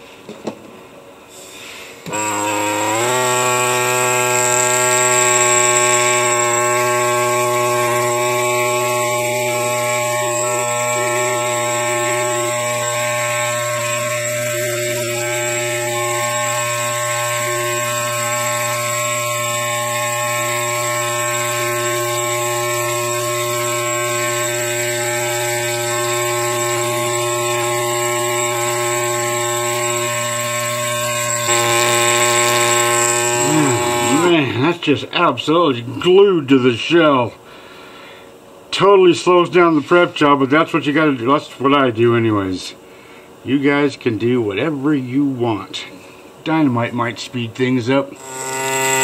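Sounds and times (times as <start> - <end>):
air scribe buzzing on rock: 1.3 - 35.0, 46.7 - 49.0.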